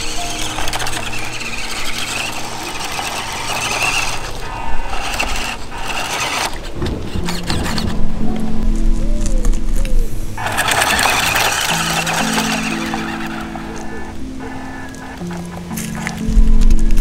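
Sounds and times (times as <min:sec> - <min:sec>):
toy truck motor running: 0:00.0 - 0:07.9, 0:10.4 - 0:16.2
water splashing under tyres: 0:10.4 - 0:17.0.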